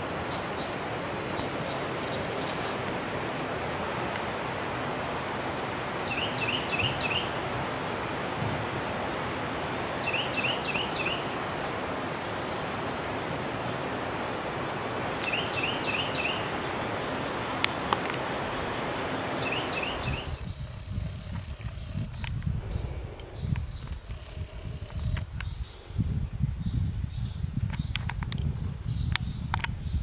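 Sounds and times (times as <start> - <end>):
bird chirping: 6.0 - 7.4, 10.0 - 11.5, 15.2 - 20.6.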